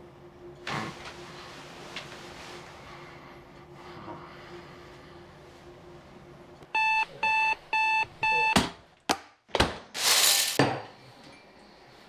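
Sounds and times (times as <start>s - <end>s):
alarm clock beeping: 6.8s - 8.6s.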